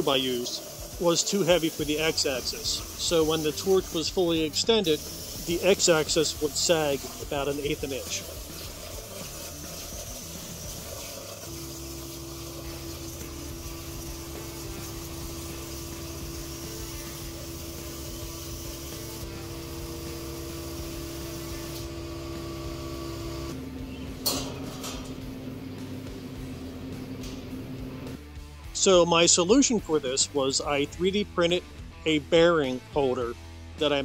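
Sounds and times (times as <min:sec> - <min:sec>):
plasma arc hissing: 0:00.0 - 0:23.6, 0:24.2 - 0:28.2
stepper motors humming and whining: 0:05.8 - 0:28.2.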